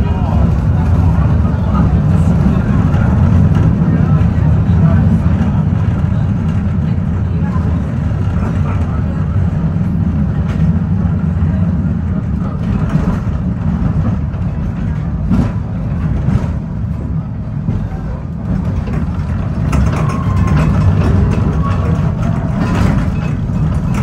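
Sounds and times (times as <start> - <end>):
tram rumbling on rails: 0.0 - 24.0.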